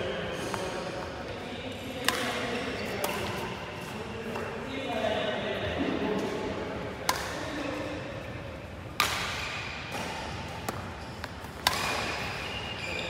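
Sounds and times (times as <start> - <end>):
racket hitting shuttlecock: 2.0 - 4.5, 7.0 - 7.8, 8.9 - 12.7.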